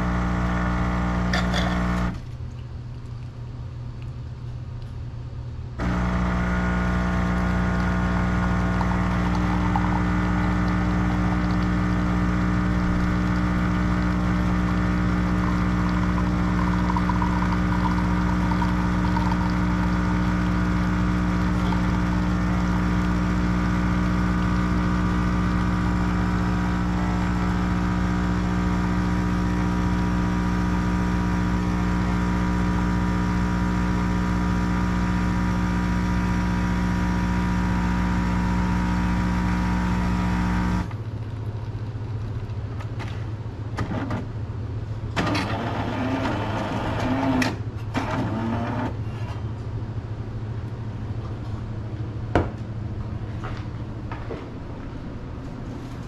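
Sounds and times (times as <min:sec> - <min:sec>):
coffee machine pump humming: 0:00.0 - 0:03.2, 0:05.8 - 0:42.2, 0:45.1 - 0:49.0.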